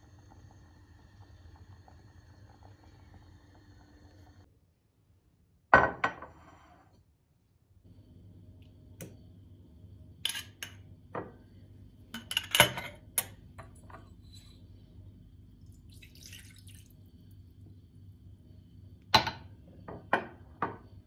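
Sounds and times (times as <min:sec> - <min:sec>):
milk pouring with soft splash: 0:15.4 - 0:17.7.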